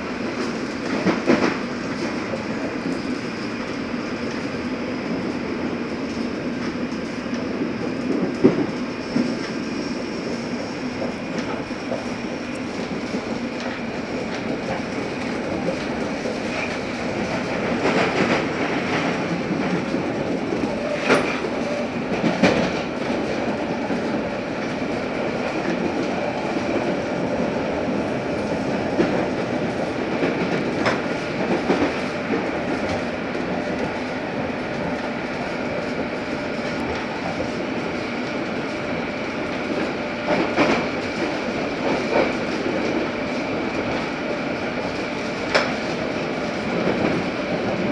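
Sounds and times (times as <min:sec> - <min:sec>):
train rumble: 0:00.0 - 0:47.9
wheels clacking on track: 0:00.0 - 0:47.9.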